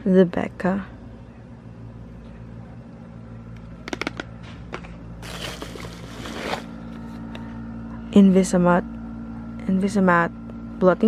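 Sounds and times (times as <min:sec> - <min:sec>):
steady low hum: 0:00.0 - 0:11.0
bubble wrap crinkling: 0:05.2 - 0:06.8.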